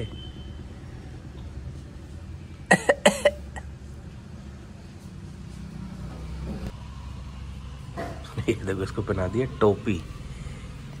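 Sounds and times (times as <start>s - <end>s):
low background hum: 0.0s - 11.0s
person coughing: 2.7s - 3.6s.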